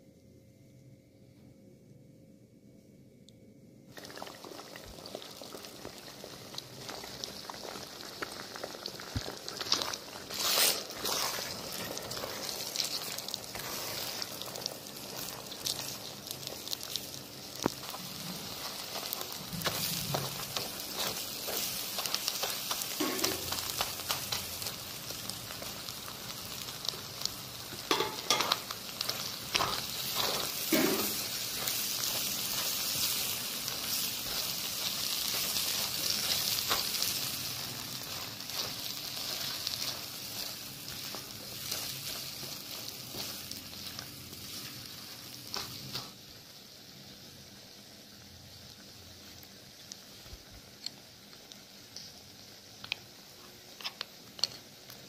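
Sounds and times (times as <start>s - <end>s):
eggs sizzling in oil: 3.9s - 55.0s
spatula stirring: 6.6s - 46.0s.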